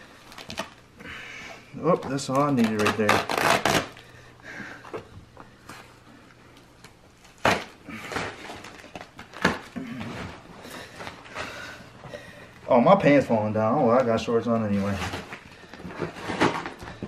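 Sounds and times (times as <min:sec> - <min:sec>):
duct tape crinkling and tearing: 0:00.2 - 0:00.9, 0:01.8 - 0:04.1, 0:06.8 - 0:11.4.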